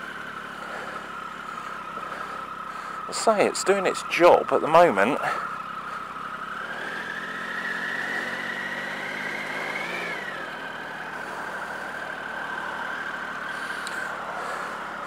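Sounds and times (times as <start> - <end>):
motorcycle engine whine: 0.0 - 15.0.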